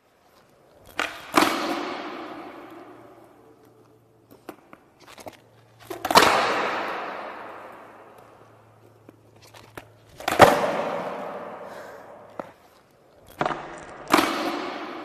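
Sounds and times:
light skateboard clacks: 0.1 - 15.0
skateboard slamming on concrete: 0.9 - 3.3, 5.8 - 8.8, 9.7 - 12.6, 13.3 - 15.0.

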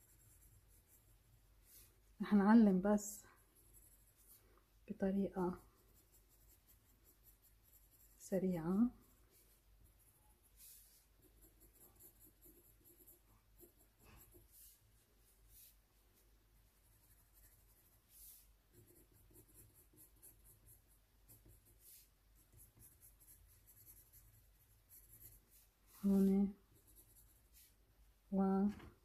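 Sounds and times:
pencil scratching on paper: 0.0 - 2.1, 3.1 - 4.5, 5.3 - 15.8, 16.6 - 27.8.

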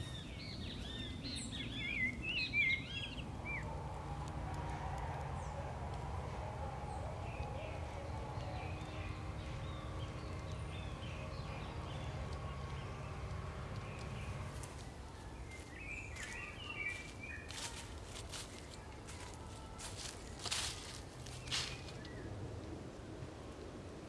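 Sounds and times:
small birds chirping: 0.0 - 22.4
steady low rumble: 0.0 - 24.0
footsteps: 3.8 - 22.1.

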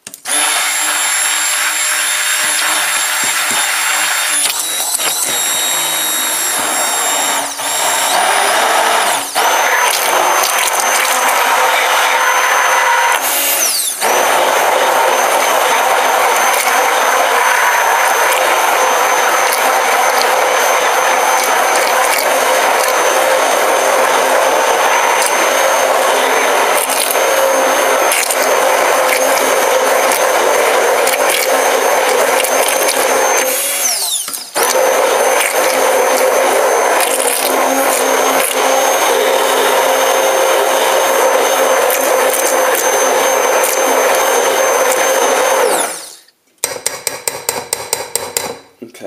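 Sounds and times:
stick blender running: 0.0 - 48.5.

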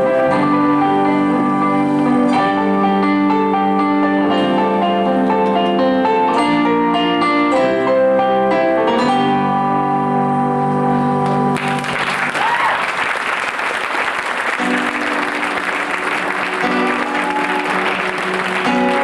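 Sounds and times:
audience applauding: 11.2 - 19.0.

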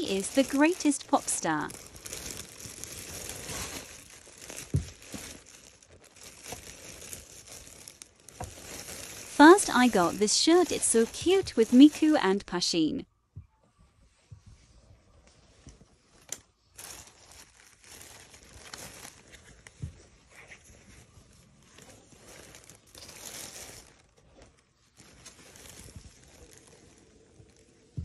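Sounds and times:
plastic bag rustling: 0.0 - 12.5, 15.9 - 28.0.

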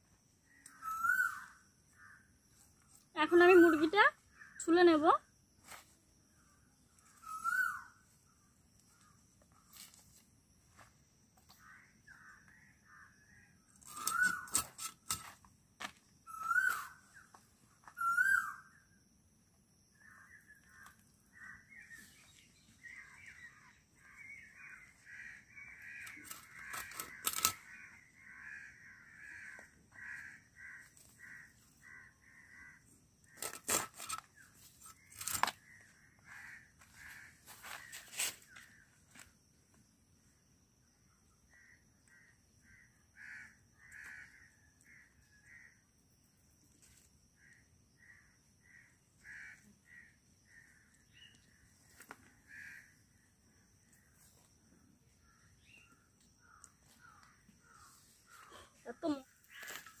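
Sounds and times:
insect drone: 0.0 - 60.0
bird whistled calls: 0.8 - 1.5, 7.2 - 7.9, 13.9 - 14.5, 16.3 - 17.0, 18.0 - 18.6
quick repeated bird chirps: 13.8 - 15.0, 16.3 - 17.3.

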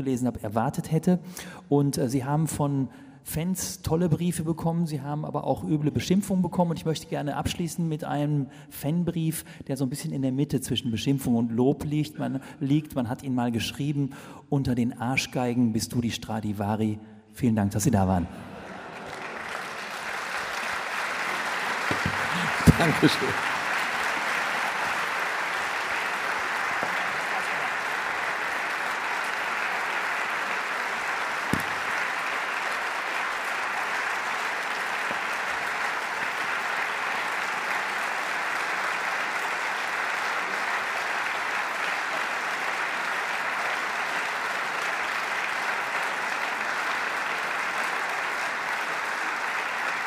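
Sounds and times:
audience applauding: 18.4 - 50.0
sharp knock: 31.5 - 31.9.

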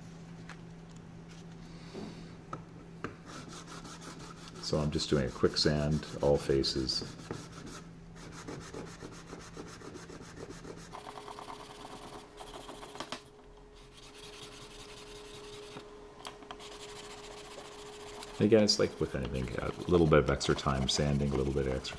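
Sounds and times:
sandpaper rubbing wood: 3.3 - 13.0, 13.8 - 15.8, 16.6 - 21.9.

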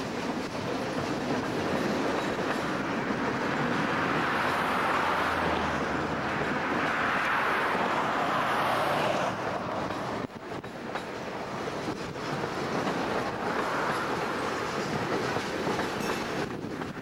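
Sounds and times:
freight train rolling past: 0.0 - 17.0
steel wheels on rails: 0.0 - 17.0.

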